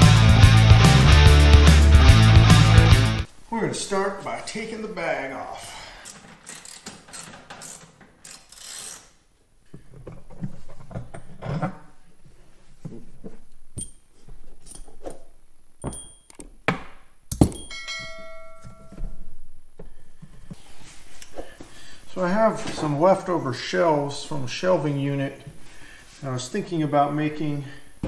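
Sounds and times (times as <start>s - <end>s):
metal hardware clinking: 13.7s - 16.6s, 17.3s - 19.3s.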